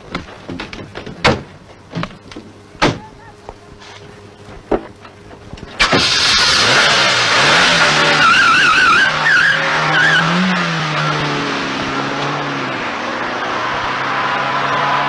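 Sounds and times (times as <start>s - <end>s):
car engine accelerating away: 5.8s - 15.0s
tyre squeal: 7.7s - 11.2s.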